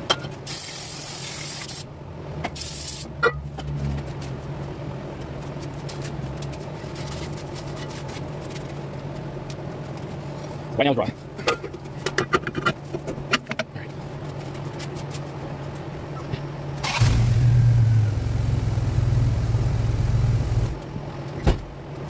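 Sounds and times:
vehicle engine humming: 0:15.4 - 0:21.4.

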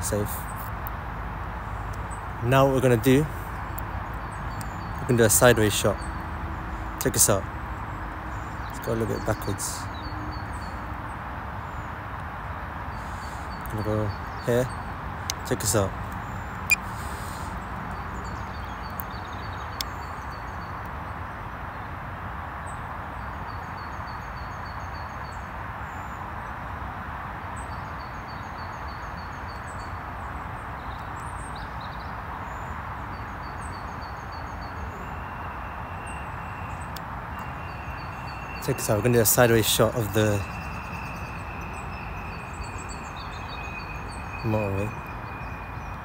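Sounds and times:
outdoor background hiss: 0:00.0 - 0:46.0
small bird chirping: 0:30.8 - 0:46.0.

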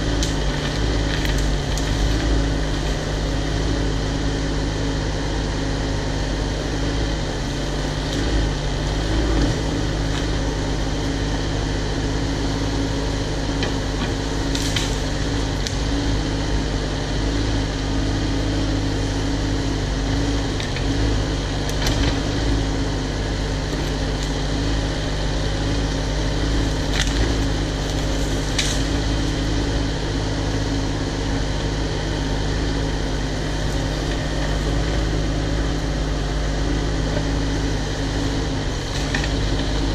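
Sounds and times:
diesel engine running: 0:00.0 - 0:39.9.

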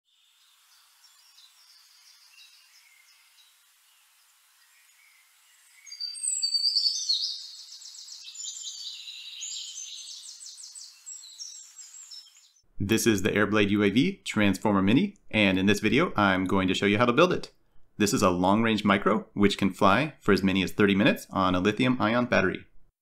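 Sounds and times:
birds chirping and trilling: 0:00.1 - 0:12.7.

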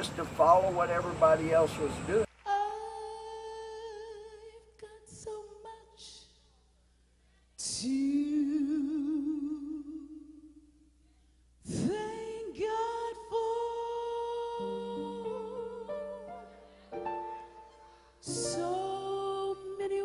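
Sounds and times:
person singing with vibrato: 0:11.7 - 0:20.0.

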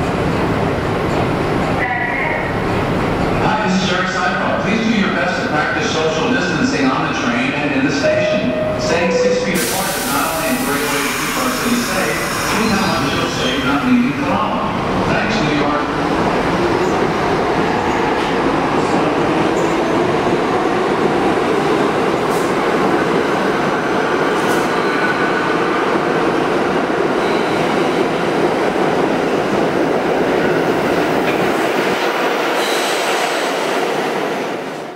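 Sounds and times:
subway train wheels rumbling: 0:00.0 - 0:34.9.

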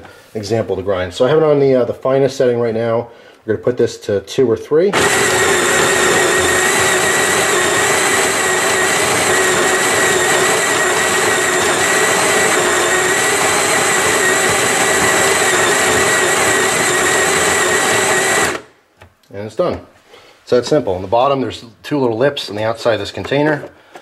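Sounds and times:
coffee grinder motor whining: 0:04.9 - 0:18.7.

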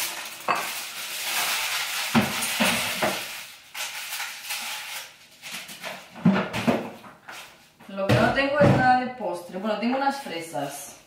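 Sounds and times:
food sizzling: 0:00.0 - 0:05.4
kitchen clatter at trash bin: 0:00.0 - 0:07.2.

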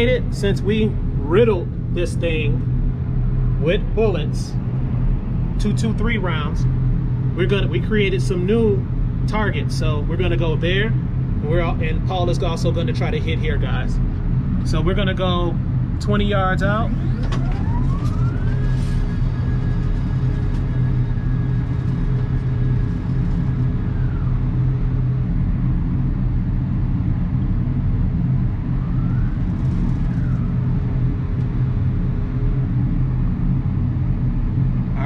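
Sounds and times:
steady low hum: 0:00.0 - 0:35.0
target carrier motor whine: 0:16.2 - 0:34.9.

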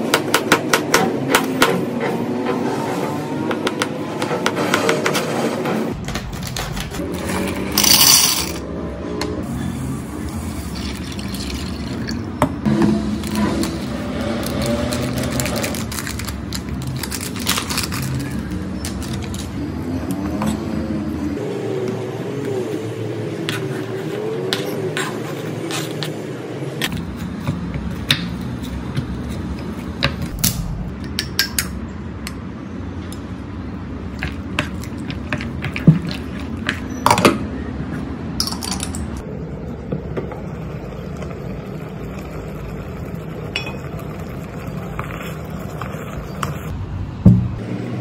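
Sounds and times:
steady low rumble: 0:30.2 - 0:32.6.

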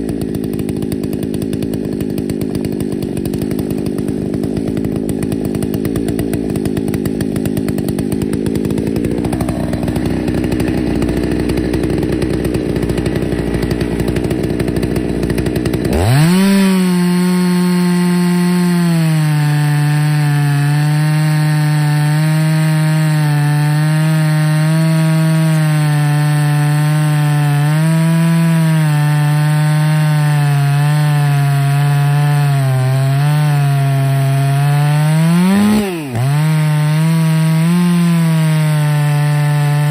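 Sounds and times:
chainsaw cutting log: 0:00.0 - 0:39.9
chainsaw idling and revving: 0:00.0 - 0:39.9.

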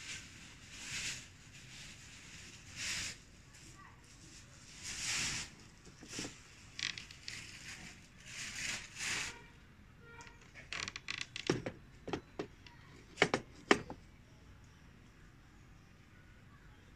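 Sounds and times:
handset rustling: 0:10.3 - 0:14.0
telephone clicks and knocks: 0:11.3 - 0:14.0.

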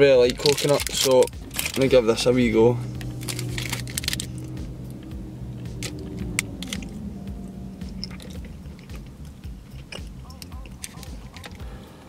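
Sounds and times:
wrapper crackling: 0:00.0 - 0:02.2
low hum: 0:01.2 - 0:11.9
chewing a snack bar: 0:08.0 - 0:11.6.

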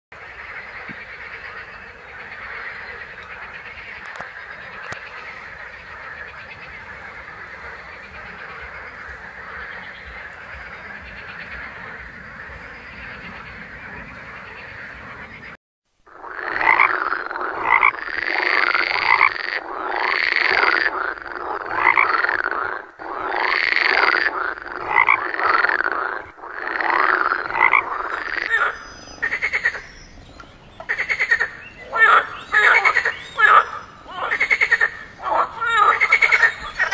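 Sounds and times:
close frog croaks: 0:00.2 - 0:36.9
frog chorus: 0:00.2 - 0:36.9.

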